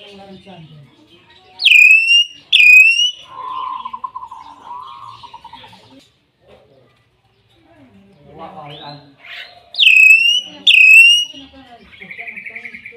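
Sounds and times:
bird whistling calls: 1.6s - 5.2s, 9.8s - 11.4s
bird trilled call: 1.6s - 5.6s, 9.8s - 11.4s.

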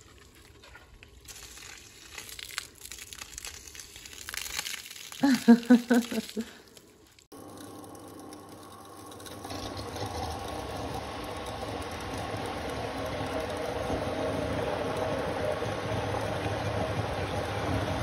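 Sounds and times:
water pump humming: 7.3s - 18.0s.

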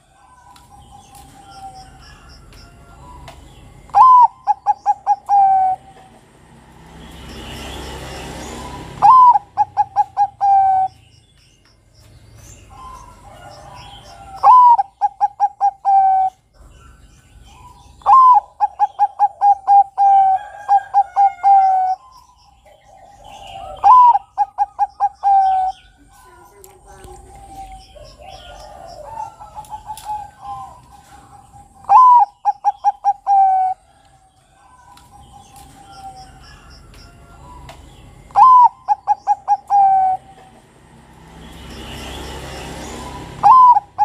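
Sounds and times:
dove cooing: 2.9s - 6.4s, 8.5s - 11.0s, 12.7s - 36.7s, 37.3s - 40.8s, 42.8s - 44.0s.

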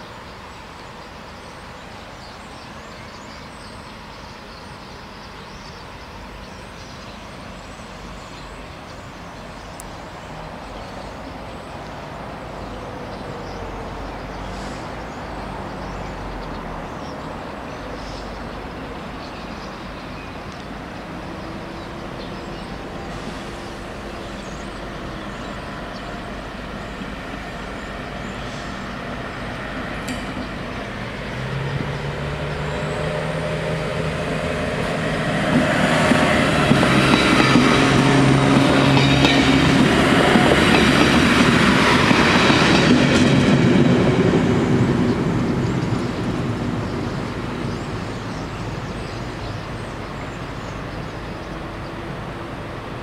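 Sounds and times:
road traffic: 0.0s - 53.0s
train approaching: 0.0s - 53.0s.

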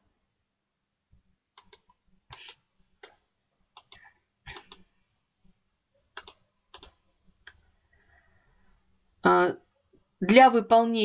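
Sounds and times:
computer mouse clicks: 1.5s - 4.9s, 6.1s - 7.6s.

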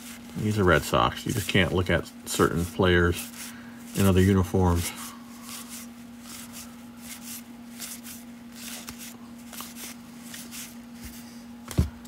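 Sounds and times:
low steady hum: 0.0s - 12.0s
cards sliding off stack: 5.4s - 12.0s.

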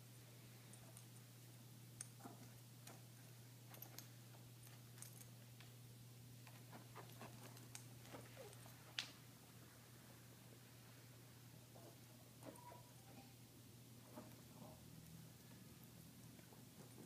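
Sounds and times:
dog scratching and pawing at rug: 6.4s - 8.7s.

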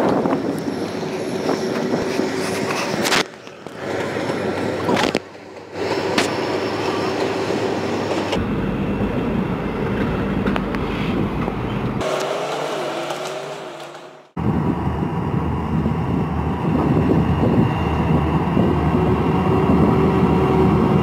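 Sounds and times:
diesel locomotive engine drone: 0.0s - 21.0s
train wheel and rail noise: 0.0s - 21.0s
deep rumble: 14.1s - 21.0s.

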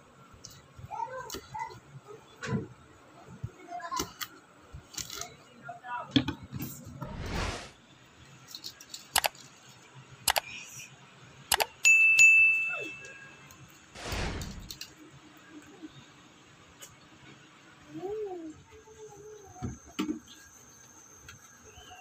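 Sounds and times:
swoosh: 7.0s - 7.8s, 14.0s - 14.8s
bell ding: 11.9s - 13.4s.

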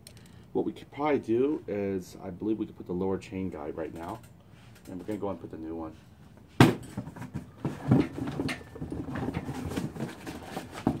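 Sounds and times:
engine parts clicking and rattling: 3.8s - 5.4s, 6.8s - 11.0s.

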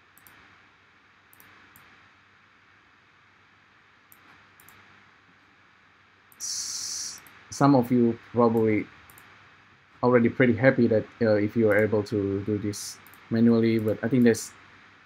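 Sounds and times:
low steady hiss: 0.0s - 15.0s
computer mouse clicks: 0.2s - 0.5s, 1.3s - 2.0s, 4.1s - 4.9s, 8.6s - 9.3s, 11.7s - 12.0s, 13.0s - 14.4s.

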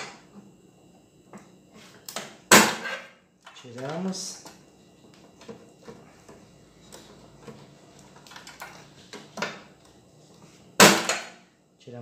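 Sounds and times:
connectors clicking and rattling: 6.9s - 9.2s.

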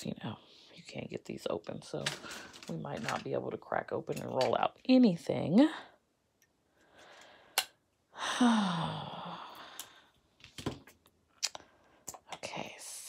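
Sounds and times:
woman sighing: 8.1s - 10.1s.

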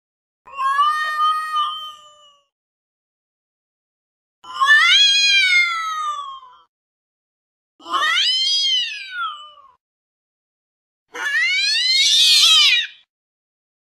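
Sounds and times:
angry cat yowling: 4.4s - 6.6s, 7.8s - 9.8s, 11.1s - 13.1s.

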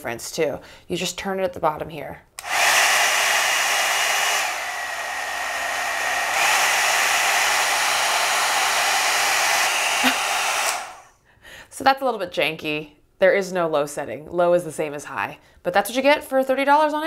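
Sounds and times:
hot-air dryer brush fan: 2.4s - 11.1s.

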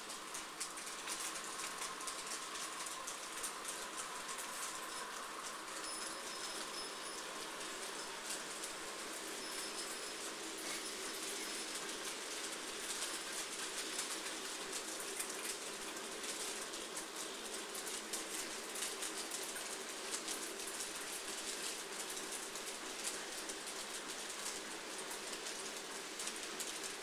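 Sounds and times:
model train hum: 0.0s - 27.0s.

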